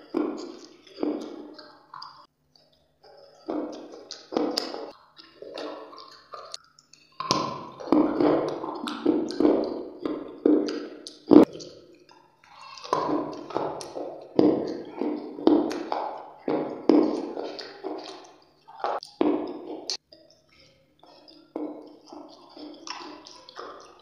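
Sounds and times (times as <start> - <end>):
crunchy chewing: 0.0 - 24.0.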